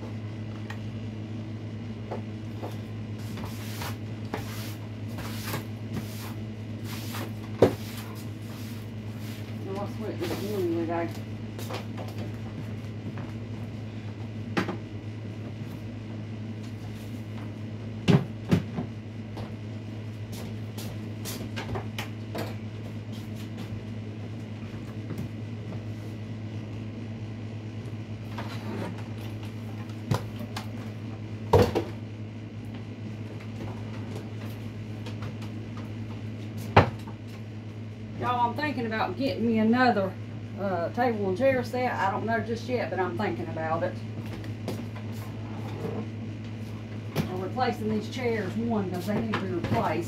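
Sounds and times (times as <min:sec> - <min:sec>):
steady low hum: 0:00.0 - 0:50.0
knocks and clatters of cleaning: 0:02.1 - 0:08.8, 0:09.4 - 0:13.4, 0:17.4 - 0:19.5, 0:31.5 - 0:32.0, 0:47.1 - 0:50.0.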